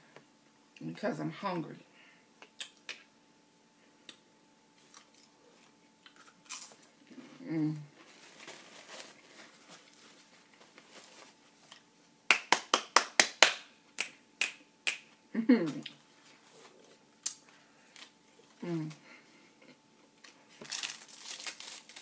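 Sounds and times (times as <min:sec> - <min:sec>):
paper bag rustling: 0:08.0 - 0:11.7, 0:20.6 - 0:22.0
finger snapping: 0:12.3 - 0:15.1.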